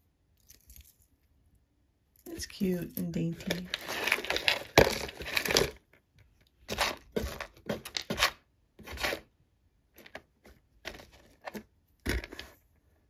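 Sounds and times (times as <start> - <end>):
plastic bags crinkling: 3.4 - 5.8.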